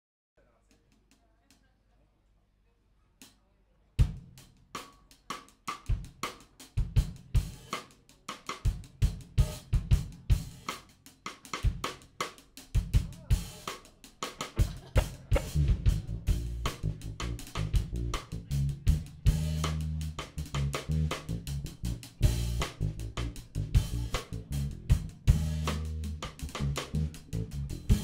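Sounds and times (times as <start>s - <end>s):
drum kit funk groove: 4.0s - 28.0s
low bass notes: 14.6s - 28.0s.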